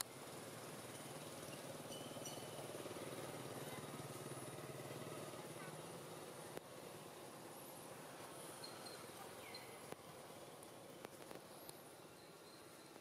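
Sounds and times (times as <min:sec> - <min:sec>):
faint small engine humming: 0:00.0 - 0:13.0
faint high chirps: 0:00.9 - 0:02.6, 0:08.5 - 0:09.9, 0:12.0 - 0:13.0.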